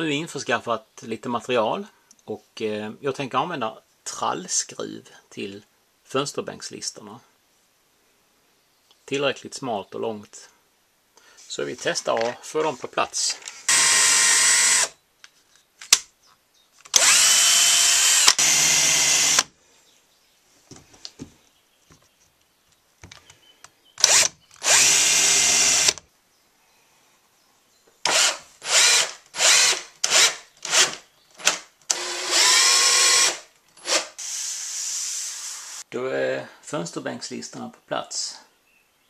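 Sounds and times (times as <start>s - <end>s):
cordless drill running: 13.7s - 15.0s, 16.9s - 19.5s, 24.0s - 26.0s, 28.1s - 35.8s.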